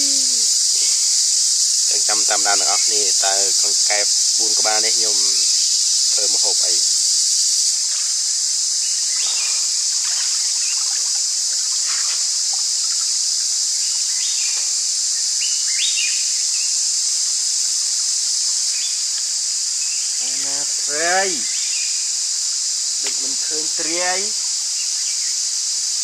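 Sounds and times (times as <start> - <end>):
night insects hissing: 0.0 - 26.0
short insect chirps: 0.0 - 26.0.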